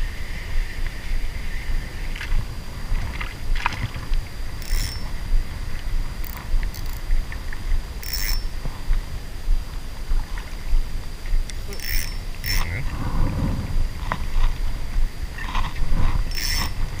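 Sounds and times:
low rumble of water and wind: 0:00.0 - 0:17.0
fishing reel winding: 0:04.6 - 0:05.2, 0:06.2 - 0:07.0, 0:08.0 - 0:08.5, 0:11.7 - 0:12.8, 0:16.3 - 0:16.8
short sharp reel bursts: 0:11.7 - 0:12.7, 0:16.3 - 0:16.8.

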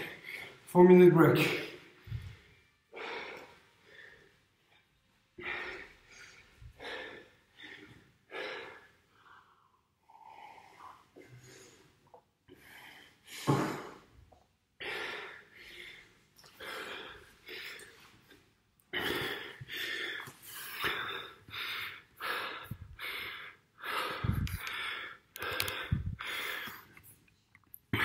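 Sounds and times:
man breathing hard and gasping: 0:05.4 - 0:11.9, 0:14.8 - 0:27.0.

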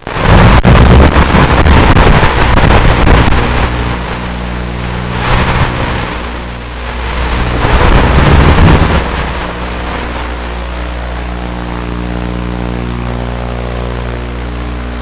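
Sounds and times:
rushing surge: 0:00.1 - 0:10.5.

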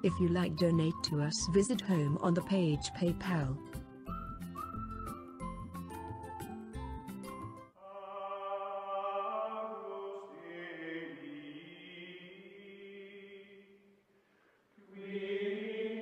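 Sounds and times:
choir-like chanting: 0:07.8 - 0:13.8, 0:14.8 - 0:16.0.

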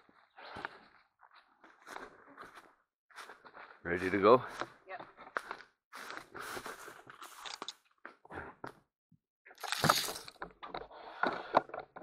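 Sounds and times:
footsteps crunching through dry brush: 0:00.6 - 0:04.6, 0:05.3 - 0:07.6.

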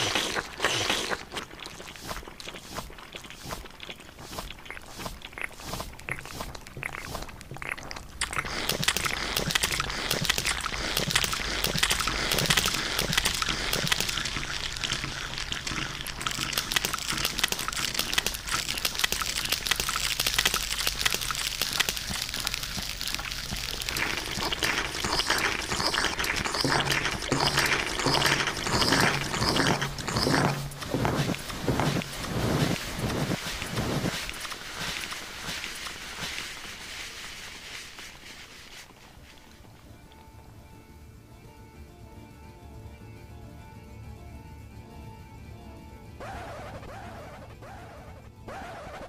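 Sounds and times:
layered eating sounds: 0:00.0 - 0:40.2.

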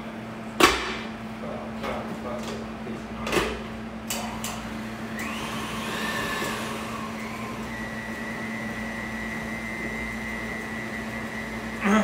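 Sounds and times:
stand mixer motor whining: 0:04.8 - 0:12.0.

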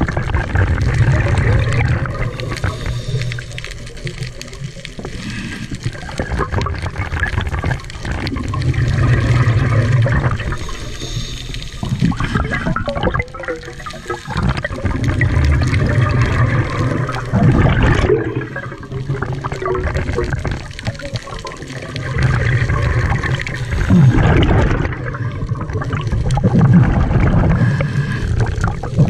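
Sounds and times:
exhaled bubbles underwater: 0:00.0 - 0:29.0
regulator inhalations: 0:10.4 - 0:12.7, 0:27.5 - 0:28.6.

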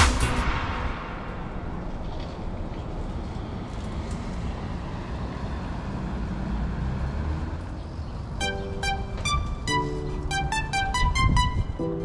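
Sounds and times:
low outdoor rumble: 0:00.0 - 0:05.1
electronic note melody: 0:08.4 - 0:12.0.

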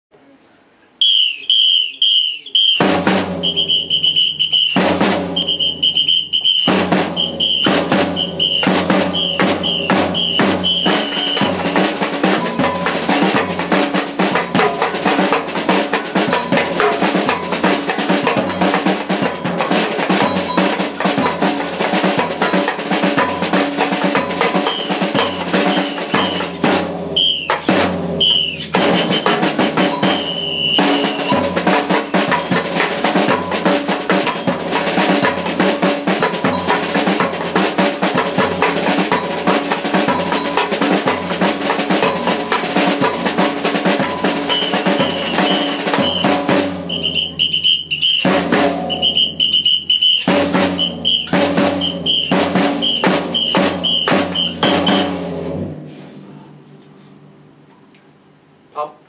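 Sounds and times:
whistle rhythmic blasts: 0:01.0 - 0:12.7, 0:20.2 - 0:20.8, 0:24.4 - 0:32.2, 0:34.2 - 0:34.8, 0:44.2 - 0:55.2
drum kit samba beat: 0:01.0 - 0:56.2
tambourine: 0:24.4 - 0:26.5, 0:44.5 - 0:46.2, 0:49.0 - 0:55.1.

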